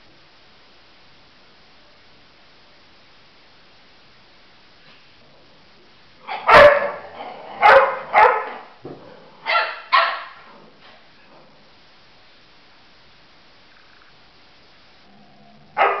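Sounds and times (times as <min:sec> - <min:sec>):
dog barking: 0:06.3 - 0:08.7, 0:09.4 - 0:10.5, 0:15.8 - 0:16.0.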